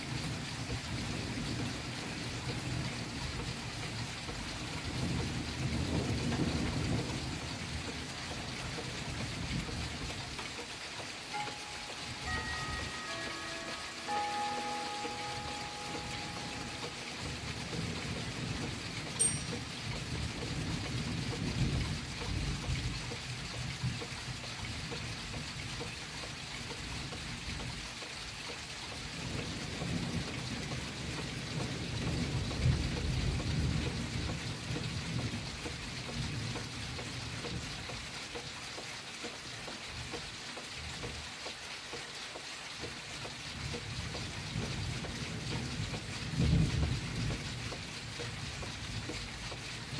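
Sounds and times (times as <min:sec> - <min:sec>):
steady rain: 0:00.0 - 0:49.9
thunder rumbling: 0:04.7 - 0:10.0.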